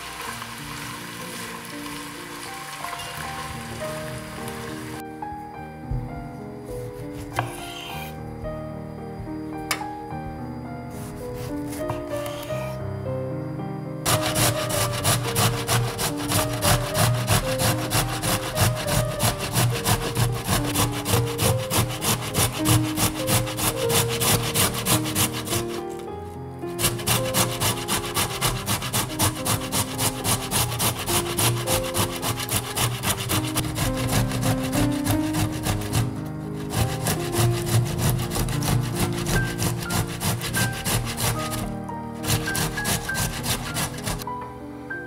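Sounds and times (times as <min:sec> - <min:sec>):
tomato grating on metal grater: 0:11.0 - 0:12.8, 0:14.1 - 0:26.0, 0:26.7 - 0:44.2.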